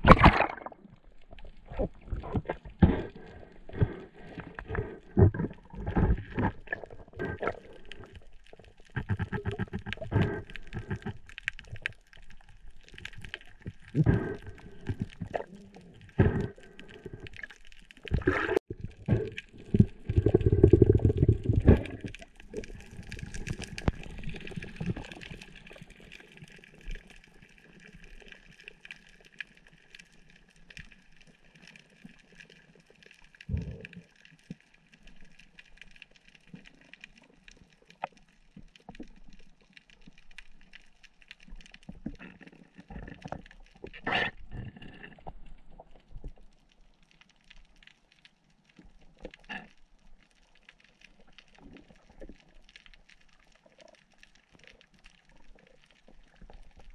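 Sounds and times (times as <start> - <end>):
water churning and bumping: 0.0 - 0.8.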